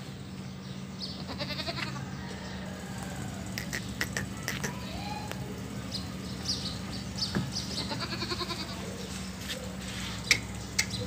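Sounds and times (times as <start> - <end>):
steady low hum: 0.0 - 11.0
goat bleating: 1.2 - 2.0, 7.7 - 9.0.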